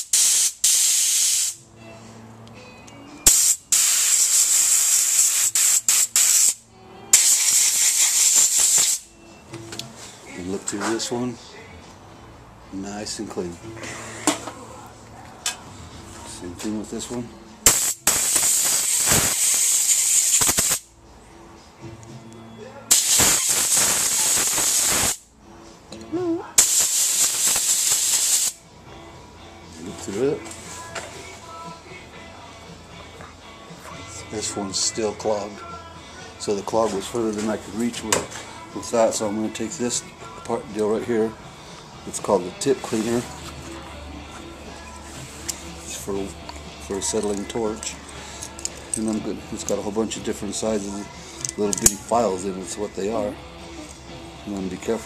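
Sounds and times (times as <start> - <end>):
compressed air blow gun hissing: 0.0 - 1.6, 3.3 - 9.0, 17.7 - 20.8, 22.9 - 25.2, 26.6 - 28.6.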